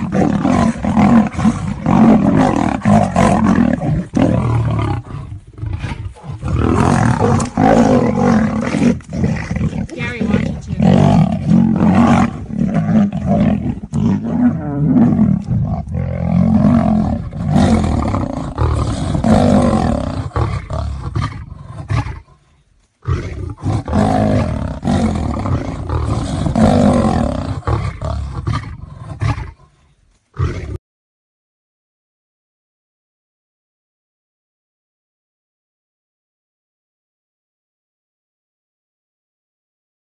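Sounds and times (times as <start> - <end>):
big cats roaring: 0.0 - 22.4, 23.0 - 29.8, 30.4 - 30.8.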